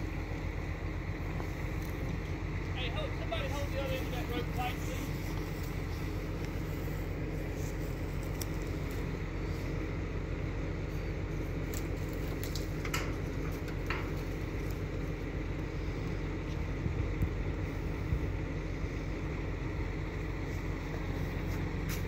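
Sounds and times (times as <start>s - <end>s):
engine running: 0.0s - 22.0s.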